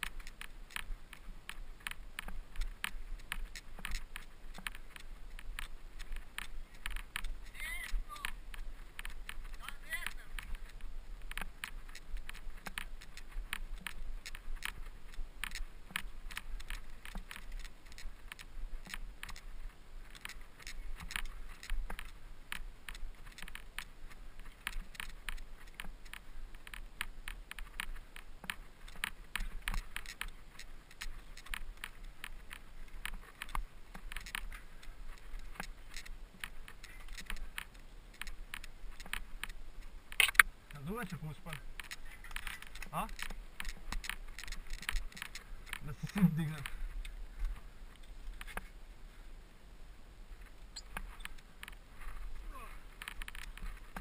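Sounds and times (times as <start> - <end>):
mountain bike rattling: 0.0 - 47.6, 50.7 - 54.0
tyres crunching on gravel: 22.9 - 46.8.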